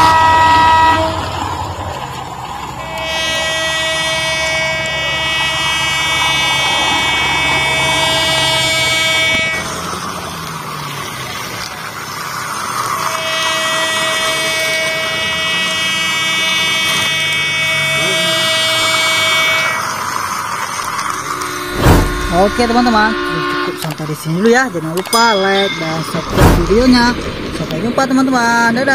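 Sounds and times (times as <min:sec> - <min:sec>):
electronic horn buzzing tone: 0:00.0 - 0:01.3, 0:02.8 - 0:09.8, 0:13.1 - 0:20.4, 0:21.0 - 0:28.1
toy train running on plastic track: 0:00.0 - 0:21.7.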